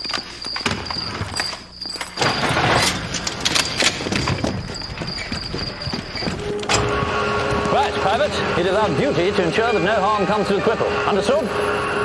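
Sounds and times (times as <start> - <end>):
crickets chirping: 0.0 - 2.6, 3.5 - 6.6
low hum: 3.0 - 12.0.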